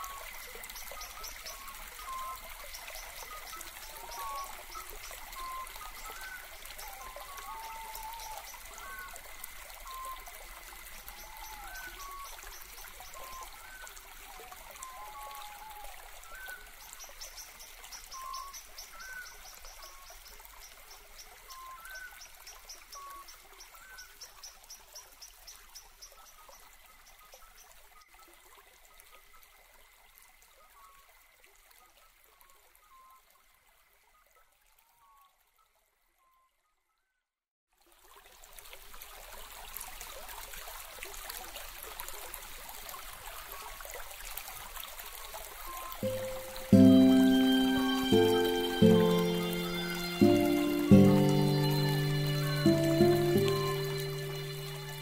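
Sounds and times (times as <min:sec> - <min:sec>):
stream trickling: 0:00.0 - 0:36.4, 0:37.7 - 0:55.0
birds whistling: 0:46.0 - 0:55.0
high bird trill: 0:46.0 - 0:55.0.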